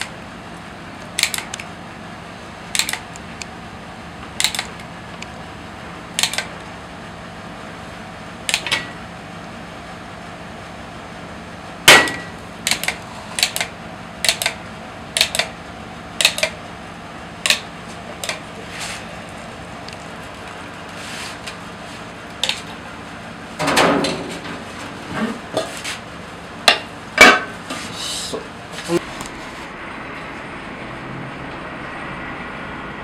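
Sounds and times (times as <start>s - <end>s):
machine hum: 0.0s - 33.0s.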